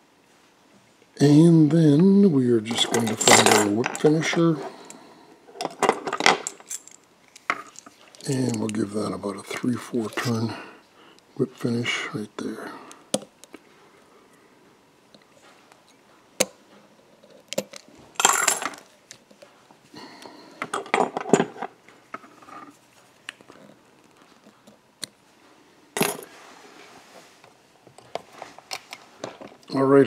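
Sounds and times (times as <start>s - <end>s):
small tools clicking and clinking: 5.6s - 8.8s.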